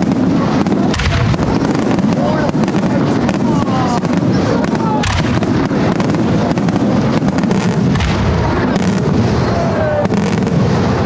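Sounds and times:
fireworks shells booming: 0:00.0 - 0:11.0.

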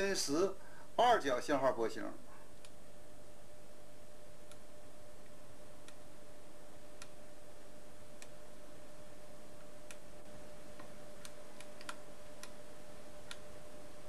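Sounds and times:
steady hiss: 0:00.0 - 0:02.4
light irregular clicks: 0:10.8 - 0:12.6.

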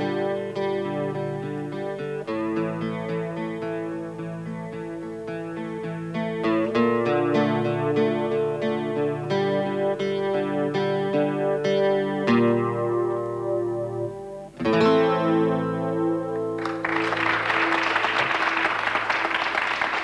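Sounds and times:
acoustic guitar chords: 0:00.0 - 0:20.0
audience applause: 0:16.6 - 0:20.0.

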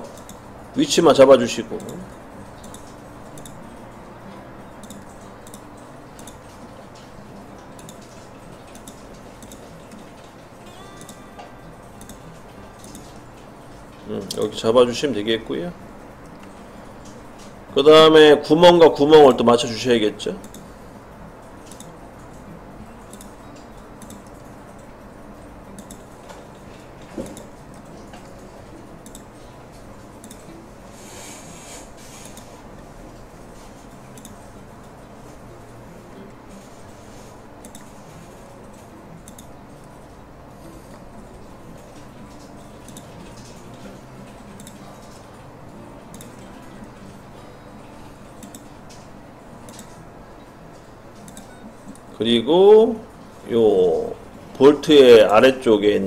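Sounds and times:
low hum and hiss: 0:00.0 - 0:56.0
computer mouse clicking: 0:00.1 - 0:00.4, 0:01.8 - 0:03.6, 0:04.8 - 0:06.5, 0:07.8 - 0:10.3, 0:12.0 - 0:12.2, 0:20.4 - 0:20.7, 0:21.7 - 0:22.4, 0:23.0 - 0:24.9, 0:25.8 - 0:26.1, 0:29.0 - 0:29.3, 0:30.2 - 0:30.5, 0:31.4 - 0:32.6, 0:34.1 - 0:34.4, 0:37.6 - 0:38.0, 0:39.2 - 0:39.5, 0:44.6 - 0:45.2, 0:48.4 - 0:50.0, 0:51.2 - 0:52.1.

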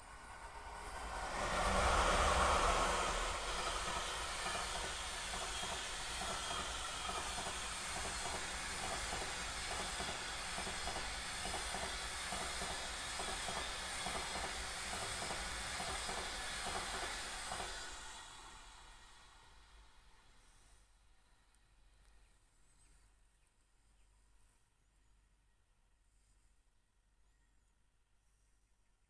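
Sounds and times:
train wheels on rails clicking: 0:00.0 - 0:19.9.

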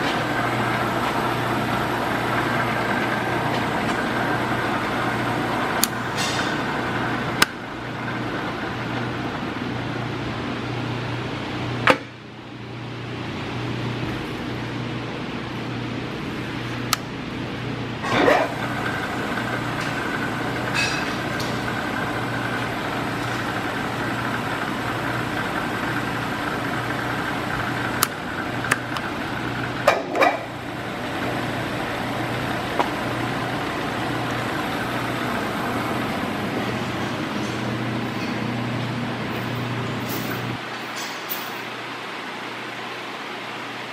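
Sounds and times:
thin whine: 0:00.0 - 0:10.7, 0:18.0 - 0:41.7
drill press humming: 0:00.0 - 0:11.9, 0:16.0 - 0:43.2.

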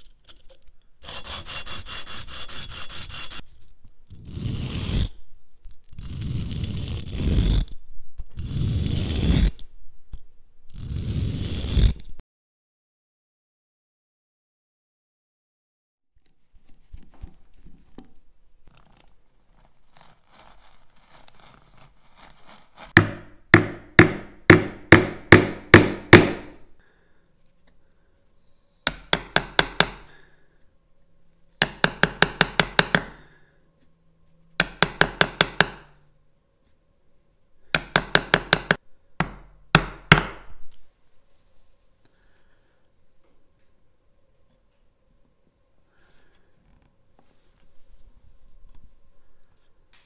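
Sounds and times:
chisel tapping into wood: 0:23.0 - 0:26.6, 0:28.9 - 0:30.1, 0:31.6 - 0:33.2, 0:34.6 - 0:35.9, 0:37.8 - 0:40.4.

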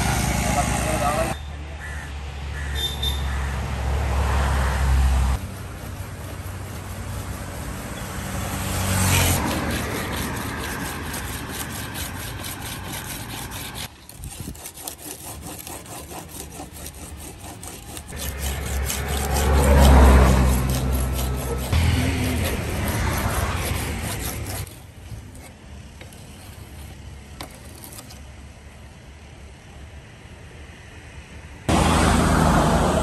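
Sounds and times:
vehicle passing: 0:02.2 - 0:13.9, 0:18.0 - 0:24.7, 0:31.7 - 0:33.0
knife rasping on abrasive disc: 0:05.3 - 0:08.3, 0:09.0 - 0:28.3.

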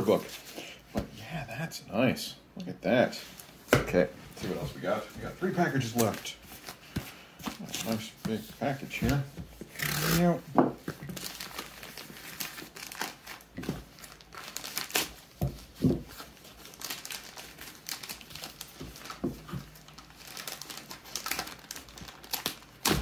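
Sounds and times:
plastic mailer crinkling: 0:11.0 - 0:23.0.

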